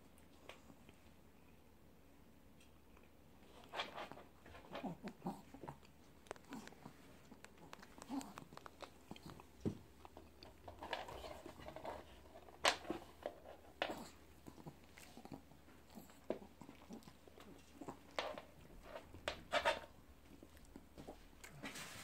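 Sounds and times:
kitten paws scuffling on floor: 0:20.2 - 0:22.0.

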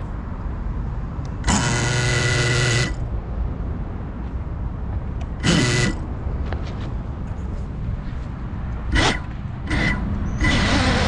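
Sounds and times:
drone motors buzzing: 0:01.3 - 0:03.2, 0:05.2 - 0:06.2, 0:07.5 - 0:11.0.

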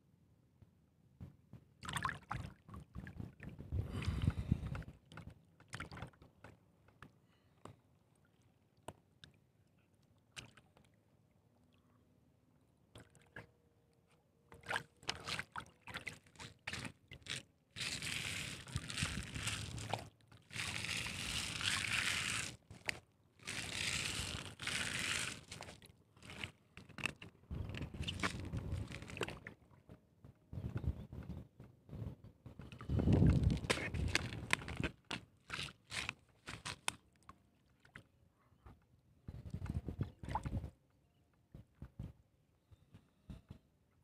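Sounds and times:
water splashing and sloshing: 0:01.8 - 0:11.8, 0:12.8 - 0:30.3, 0:32.6 - 0:38.2, 0:39.5 - 0:40.8
handling clicks and scrapes: 0:32.6 - 0:37.0.

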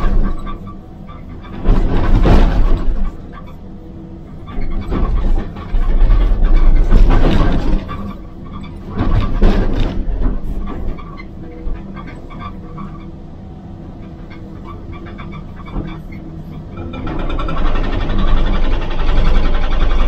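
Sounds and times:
excavator engine running: 0:00.0 - 0:20.0
hydraulic breaker hammering rubble: 0:01.5 - 0:03.3, 0:04.6 - 0:08.2, 0:08.8 - 0:11.0, 0:16.8 - 0:20.0.

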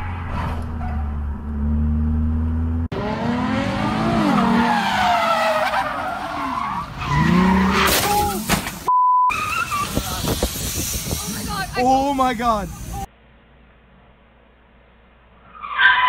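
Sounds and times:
car engine and road drone: 0:00.0 - 0:16.0
tyres squealing: 0:04.5 - 0:10.4
censor beep: 0:08.9 - 0:09.3.

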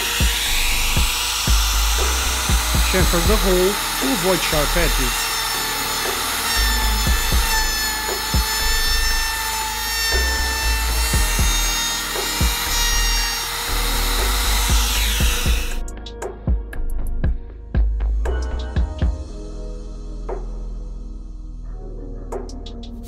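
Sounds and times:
router bit cutting wood: 0:00.0 - 0:15.9
router motor whining: 0:00.0 - 0:15.9.

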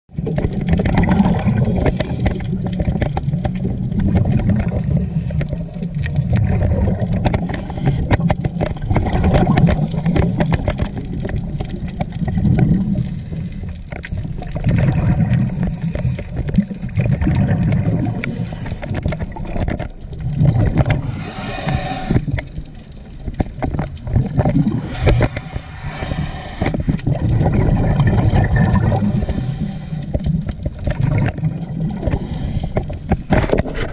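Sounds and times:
exhaled bubbles bursting: 0:00.1 - 0:33.9
diver breathing through regulator: 0:01.5 - 0:02.6, 0:04.5 - 0:05.7, 0:07.3 - 0:08.4, 0:12.7 - 0:13.8, 0:15.0 - 0:16.5, 0:17.8 - 0:19.2, 0:20.8 - 0:22.8, 0:24.6 - 0:27.1, 0:28.5 - 0:30.5, 0:31.9 - 0:33.9.

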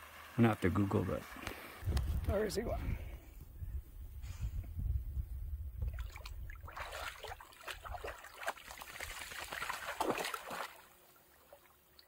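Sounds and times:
dog splashing in shallow water: 0:05.9 - 0:11.8.

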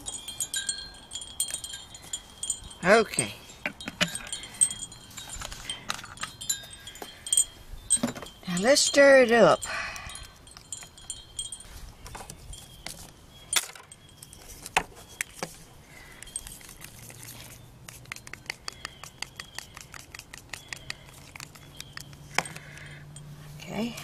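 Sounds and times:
stick stirring paint: 0:16.2 - 0:22.7
stick clicking against plastic cup: 0:17.9 - 0:22.9.

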